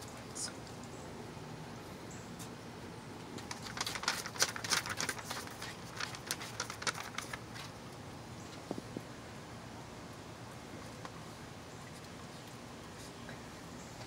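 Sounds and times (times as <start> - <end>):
dog claws clicking on wooden boards: 3.4 - 7.4.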